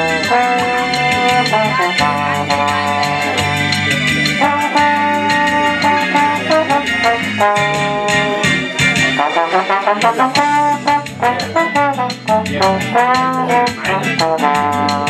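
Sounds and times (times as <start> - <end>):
latin jazz backing track: 0.0 - 15.0
trombone solo melody: 0.0 - 15.0.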